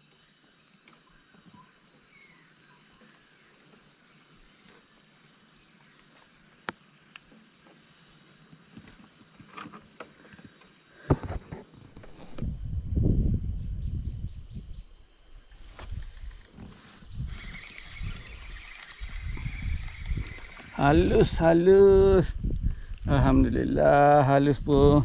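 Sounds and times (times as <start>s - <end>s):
high-pitched insect buzz: 0.0s - 25.0s
small knocks and rustles: 7.2s - 12.5s.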